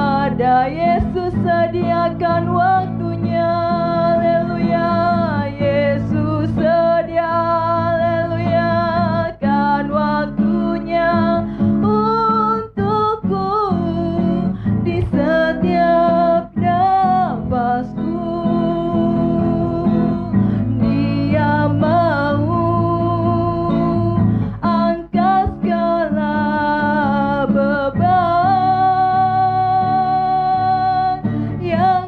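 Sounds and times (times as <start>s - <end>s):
acoustic guitar: 0.0s - 32.0s
woman singing into a microphone: 0.0s - 32.0s
singer breathing: 11.4s - 11.8s, 14.4s - 14.8s, 20.3s - 20.8s, 24.2s - 24.6s, 31.2s - 31.6s.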